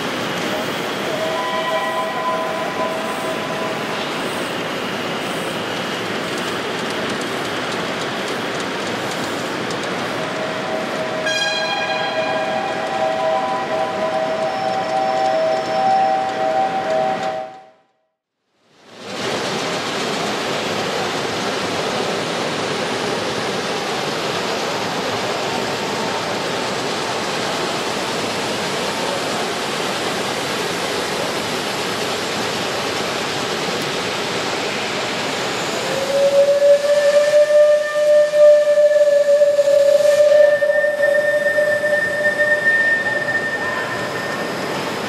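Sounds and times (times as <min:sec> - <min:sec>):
steam hissing: 0:00.0 - 0:15.7, 0:19.0 - 0:45.0
steam whistle: 0:01.0 - 0:04.2, 0:10.2 - 0:17.9, 0:35.6 - 0:45.0.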